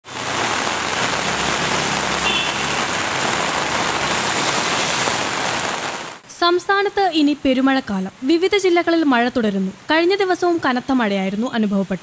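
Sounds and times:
heavy rain on street: 0.0s - 12.0s.

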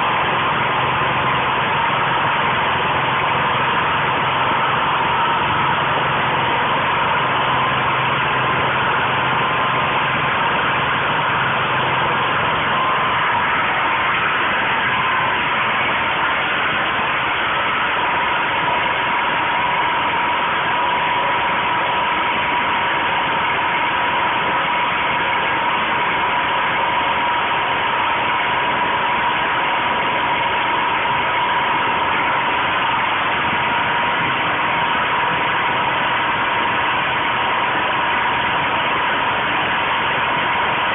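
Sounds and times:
even whine: 0.0s - 40.9s
generator engine running: 0.0s - 40.9s.

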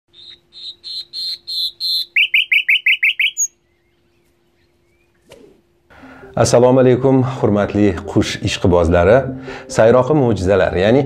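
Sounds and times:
nightingale singing: 0.1s - 5.2s.

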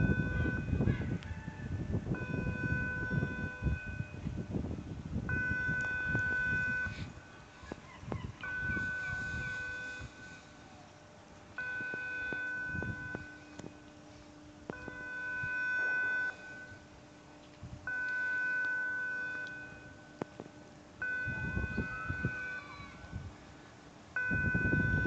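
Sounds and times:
electronic warning beeps: 0.0s - 0.9s, 2.2s - 4.5s, 5.3s - 10.6s, 11.5s - 16.9s, 17.9s - 20.4s, 21.0s - 23.2s, 24.2s - 25.0s.

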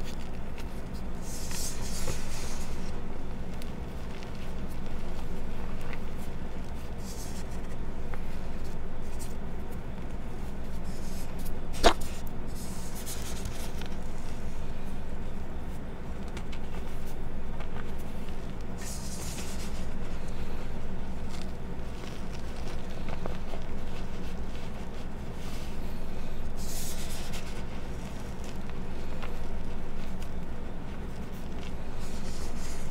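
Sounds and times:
chalk crunching by hand: 0.0s - 14.6s, 16.6s - 32.9s
steady low hum: 0.0s - 32.9s.

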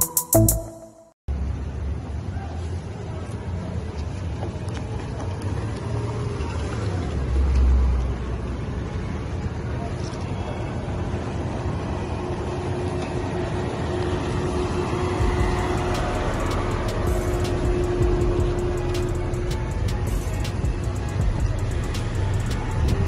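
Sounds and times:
cars rolling slowly: 1.3s - 23.0s
low rumble: 14.6s - 23.0s.

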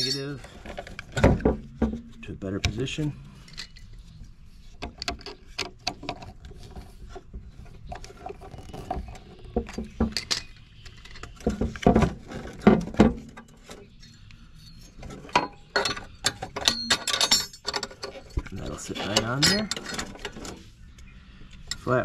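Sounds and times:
clicks and clinks of hands working: 7.9s - 20.5s.

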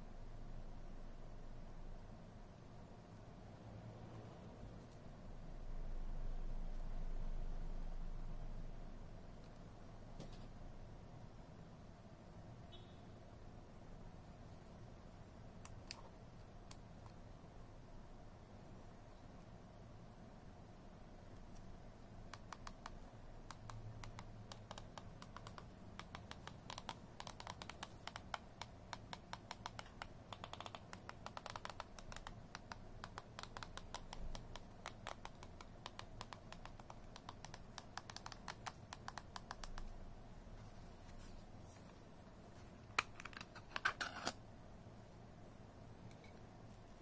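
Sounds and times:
small keyboard keys clicking: 22.3s - 40.0s.

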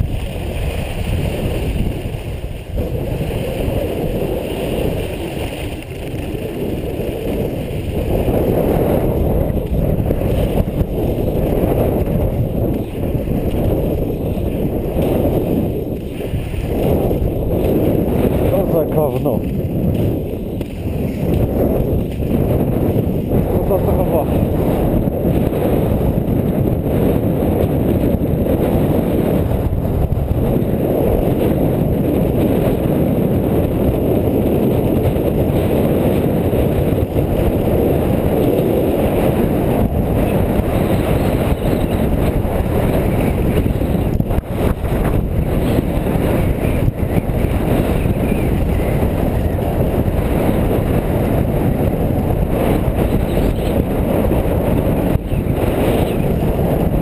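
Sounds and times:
skis scraping over snow: 0.0s - 57.0s
wind rushing on microphone: 0.0s - 57.0s.

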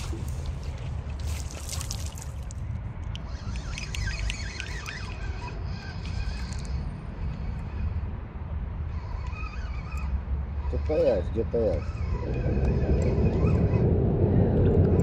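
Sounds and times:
water splashing and trickling: 0.0s - 6.8s
steady low rumble: 0.0s - 9.1s, 9.9s - 15.0s.

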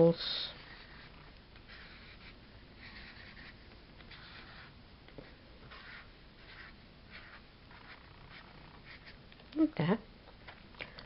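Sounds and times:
marker scratching on paper: 0.2s - 4.7s, 5.6s - 9.2s.

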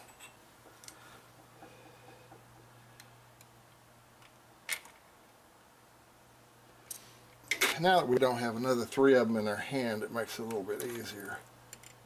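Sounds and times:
steady low hum: 0.0s - 12.0s
metallic clicks of small parts: 4.2s - 5.0s, 10.5s - 12.0s.

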